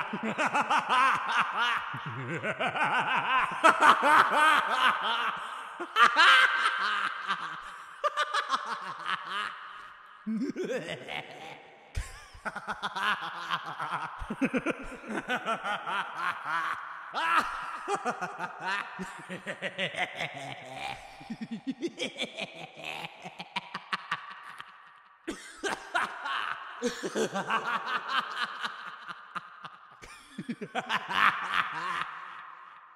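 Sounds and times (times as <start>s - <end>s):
man laughing maniacally: 0.0s - 32.9s.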